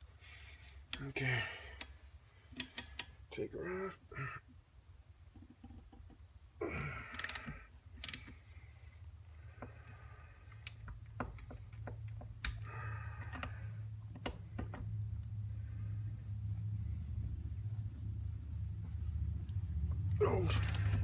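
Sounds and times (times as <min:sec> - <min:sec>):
low steady hum: 0:00.0 - 0:21.0
metal parts rattling: 0:20.3 - 0:21.0.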